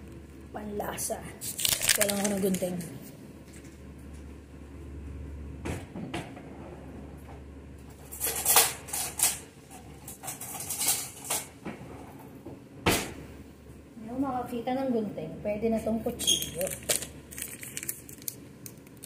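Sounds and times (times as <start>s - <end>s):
kitchen utensils clattering: 8.1s - 9.4s, 10.0s - 11.6s.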